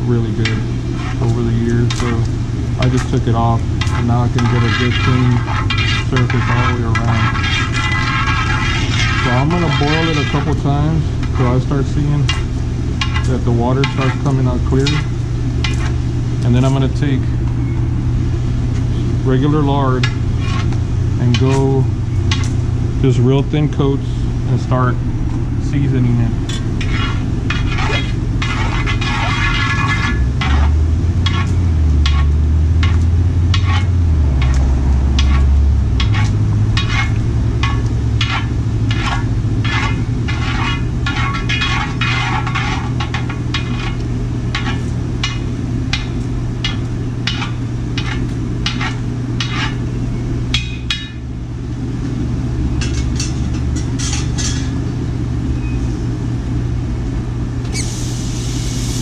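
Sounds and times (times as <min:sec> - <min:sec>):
utensil scraping a wok: 0:00.0 - 0:17.2, 0:19.7 - 0:22.6, 0:26.0 - 0:50.0, 0:52.8 - 0:54.8
propane burner running: 0:00.0 - 0:59.0.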